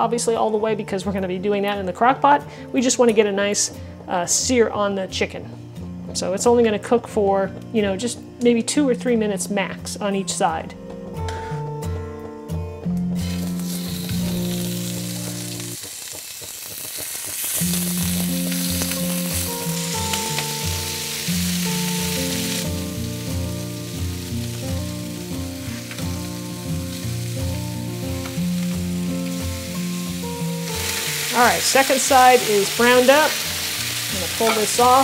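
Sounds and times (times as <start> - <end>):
background music: 0.0 - 35.0
chicken sizzling in skillet: 13.2 - 35.0.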